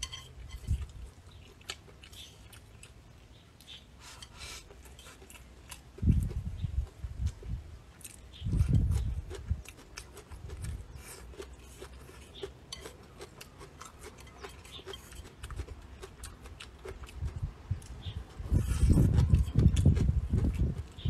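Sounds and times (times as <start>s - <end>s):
chopsticks scraping ceramic bowl: 0.0s - 1.0s, 11.1s - 15.7s
chewing: 0.0s - 21.0s.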